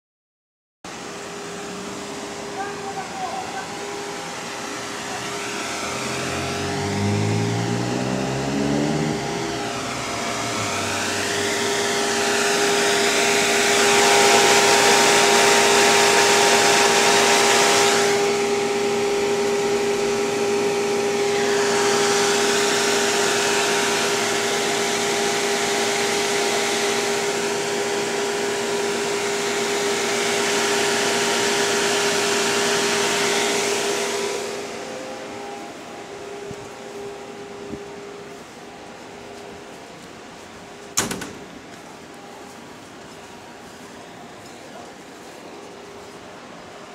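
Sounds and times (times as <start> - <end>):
cooling fan whirring: 0.9 - 46.9
low tone climbing in pitch: 3.0 - 15.3
rushing air: 3.8 - 27.1, 29.6 - 39.8.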